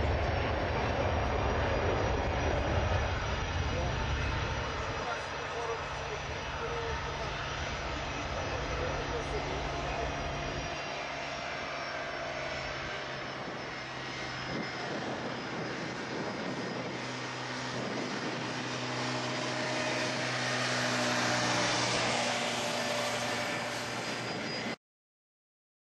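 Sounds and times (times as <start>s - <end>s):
jet engine noise: 0.0s - 24.8s.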